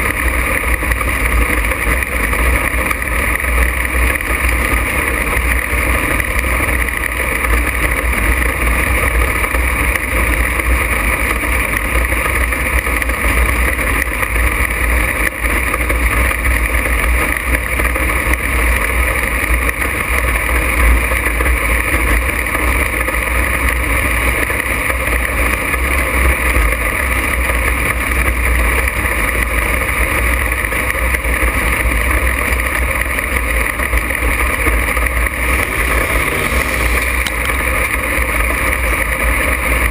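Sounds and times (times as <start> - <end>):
race car engine running: 0.0 - 39.9.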